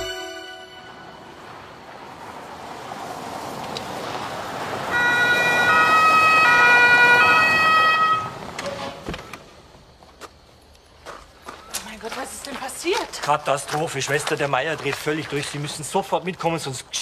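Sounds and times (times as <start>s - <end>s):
police two-tone siren: 4.9s - 8.4s.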